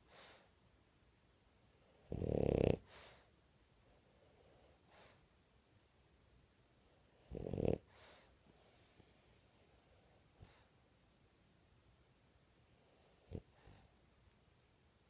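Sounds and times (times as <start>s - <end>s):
soft hissing breath out: 0.0s - 0.6s, 7.8s - 10.8s
dog snoring breaths: 1.9s - 3.3s, 4.4s - 5.2s, 7.1s - 9.4s, 10.0s - 10.7s, 12.8s - 13.9s.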